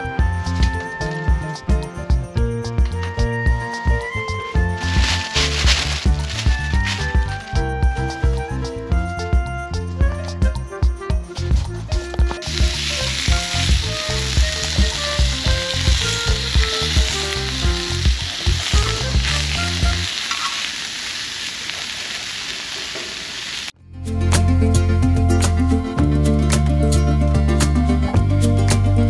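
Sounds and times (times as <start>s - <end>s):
steaks sizzling on griddle: 12.4s - 23.7s.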